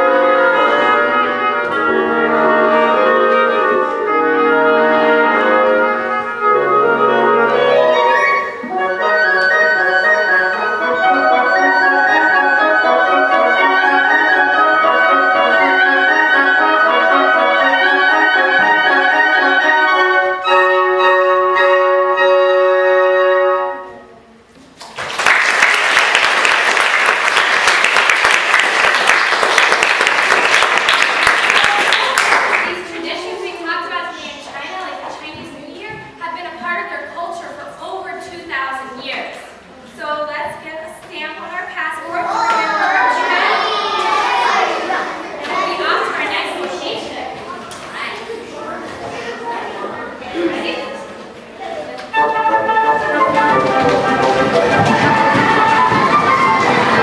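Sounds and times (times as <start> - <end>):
woodwind quintet playing: 0.0 - 24.3, 52.1 - 57.0
audience applauding: 24.8 - 32.8, 53.0 - 57.0.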